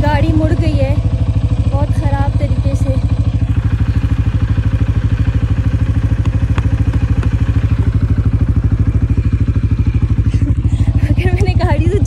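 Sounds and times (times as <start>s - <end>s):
quad bike engine idling: 0.0s - 12.0s.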